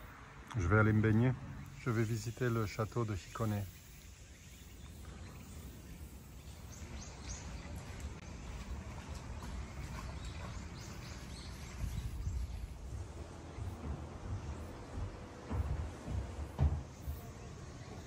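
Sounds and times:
wind rumble on microphone: 5.0 - 18.0.

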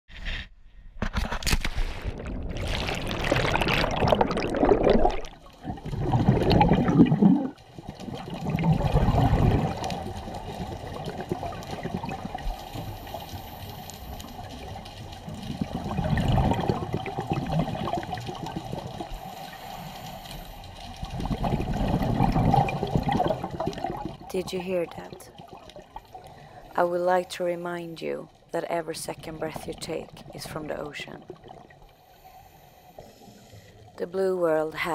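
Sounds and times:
water rushing and sloshing: 1.8 - 26.9.

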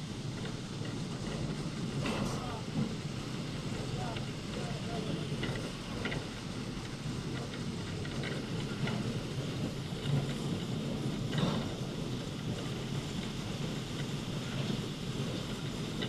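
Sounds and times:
train low rumble: 0.0 - 16.0.

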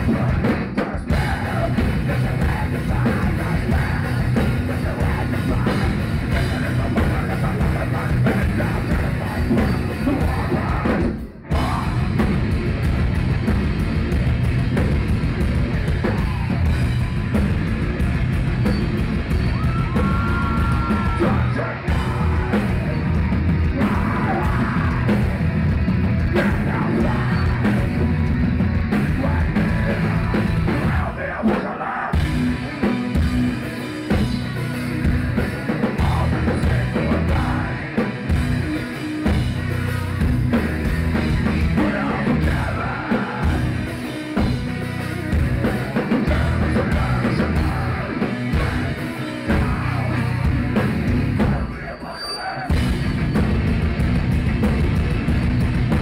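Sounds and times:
person singing: 0.0 - 12.2, 19.6 - 25.4, 26.3 - 28.1, 29.0 - 32.9, 35.4 - 39.2, 41.2 - 44.5, 45.7 - 50.8
heavy metal band playing: 0.0 - 56.0.

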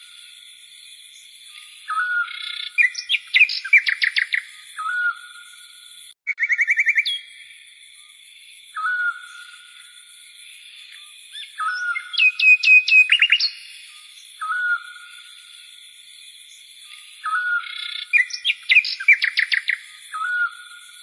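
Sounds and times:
small songbird singing: 1.1 - 21.0.

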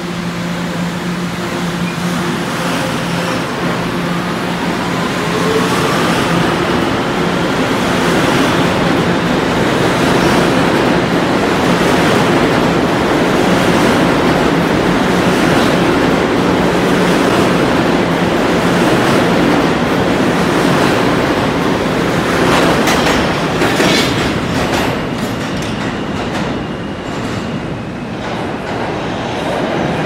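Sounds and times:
subway train motor whine: 0.0 - 30.0
wheels rumbling on rail: 0.0 - 30.0.

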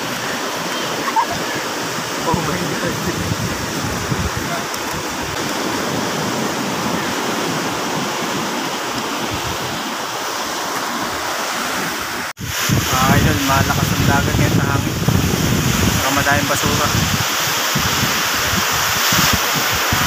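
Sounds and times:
surf breaking on beach: 0.0 - 20.0
wind in microphone: 2.2 - 9.9, 12.4 - 20.0.

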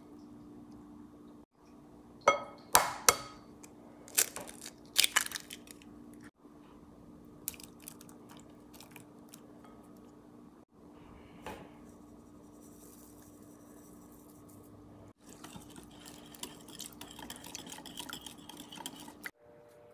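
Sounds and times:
eggshell crackling: 4.1 - 5.9.

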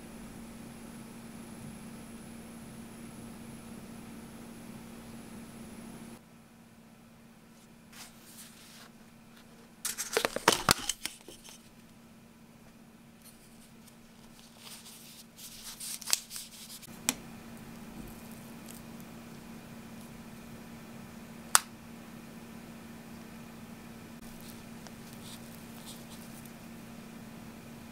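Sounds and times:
plastic lid crackling: 9.9 - 11.6.

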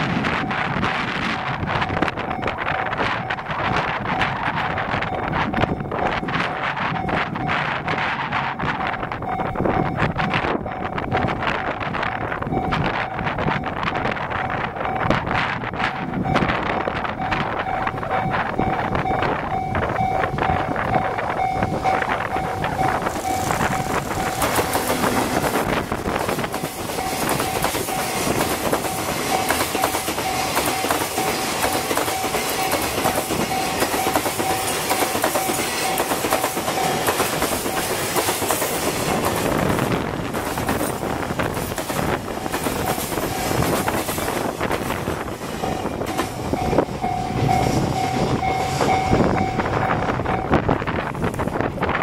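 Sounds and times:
steady high-pitched tone: 0.0 - 39.6, 42.3 - 51.0
freight train rolling past: 0.0 - 52.0
wind buffeting microphone: 0.0 - 52.0
wagons clattering over rail joints: 13.5 - 49.5.

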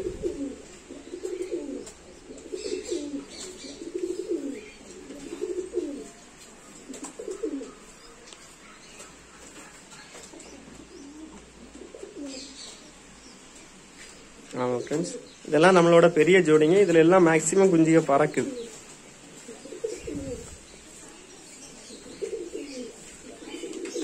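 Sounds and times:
pigeons cooing: 0.0 - 24.0.

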